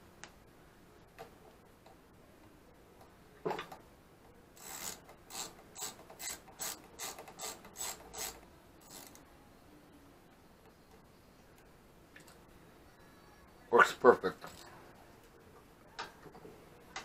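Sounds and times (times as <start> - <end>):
ratchet wrench clicking: 4.6 - 9.2.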